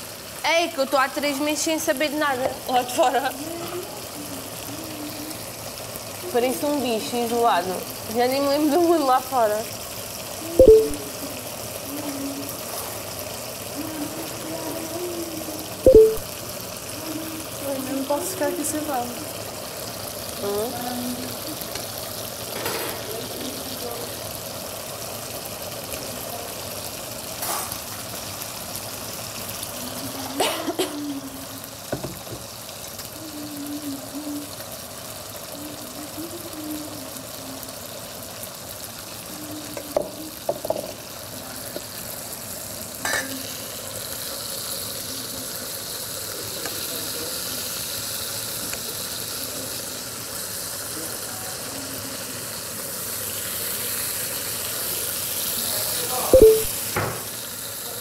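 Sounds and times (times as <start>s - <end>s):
meat sizzling in a pan: 0.0s - 58.0s.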